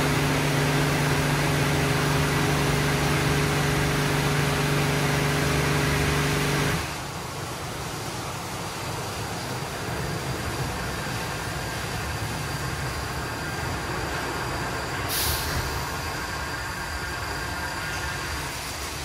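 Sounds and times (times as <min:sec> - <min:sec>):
car wash water and machinery: 0:00.0 - 0:19.0
short sharp hiss: 0:15.1 - 0:16.0.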